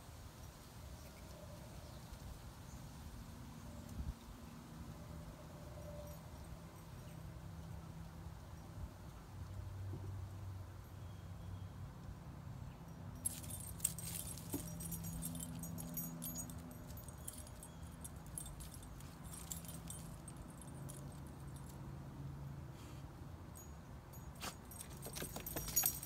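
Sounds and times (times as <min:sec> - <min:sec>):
dog collar tags jingling: 0:13.0 - 0:21.9, 0:23.6 - 0:26.0
dry leaves rustling: 0:13.2 - 0:16.3.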